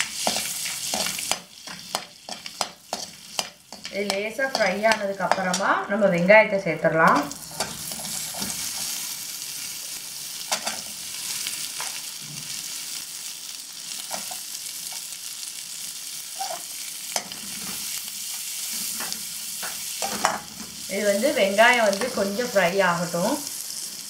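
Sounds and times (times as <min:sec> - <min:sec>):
spatula scraping pan: 0:00.0 - 0:05.8, 0:07.1 - 0:09.1
onions sizzling in butter: 0:00.0 - 0:24.0.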